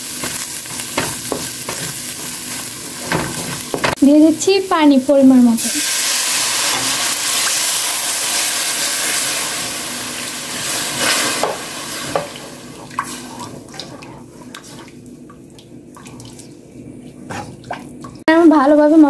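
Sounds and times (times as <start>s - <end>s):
oil sizzling in a pan: 0.0s - 13.4s.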